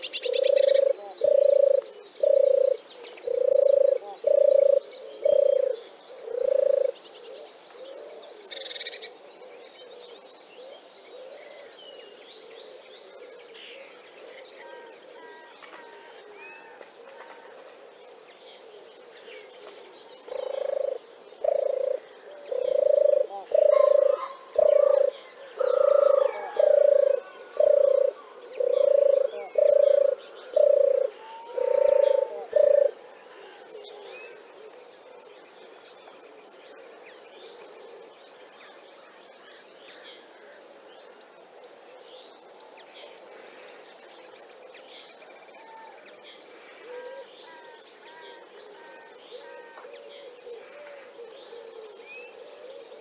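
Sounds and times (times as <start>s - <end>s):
turtle dove purring: 0.0s - 8.6s, 20.3s - 33.0s
faint songbird chirps: 0.0s - 16.6s, 17.2s - 53.0s.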